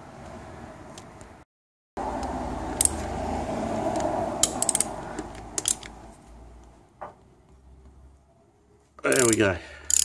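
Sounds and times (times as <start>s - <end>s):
ratchet wrench grating: 3.9s - 5.9s, 9.1s - 10.0s
sharp metallic clicks: 3.9s - 6.0s, 9.1s - 10.0s.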